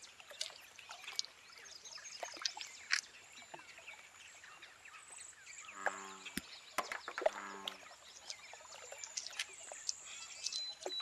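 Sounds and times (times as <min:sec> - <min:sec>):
birds chirping and calling: 0:00.4 - 0:11.0
small ticks: 0:07.4 - 0:11.0.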